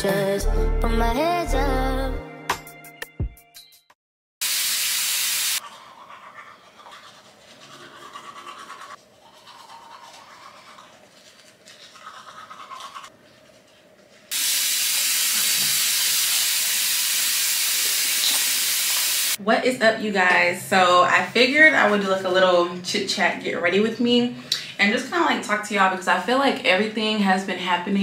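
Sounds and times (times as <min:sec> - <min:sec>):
steady hiss: 0:14.3 - 0:19.4.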